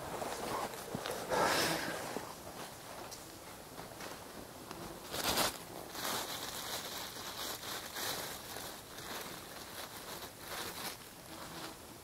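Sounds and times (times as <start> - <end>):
person moving through undergrowth: 3.8 - 11.8.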